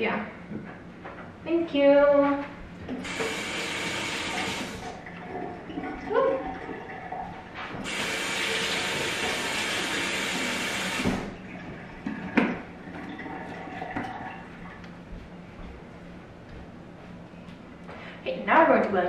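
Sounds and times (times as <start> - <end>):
faucet running into sink: 3.0 - 11.4.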